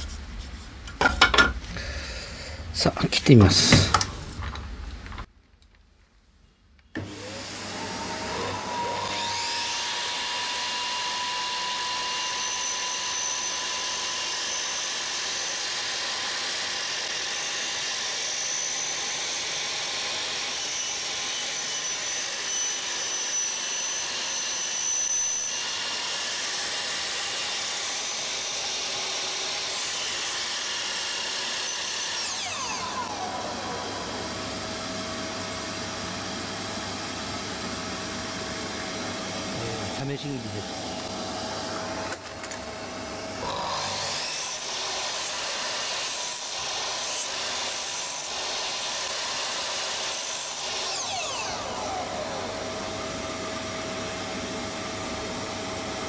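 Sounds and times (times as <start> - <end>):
saw blade winding down: 7.0 - 20.0, 20.9 - 36.0, 43.4 - 53.1
miter saw cutting wood: 7.0 - 56.0.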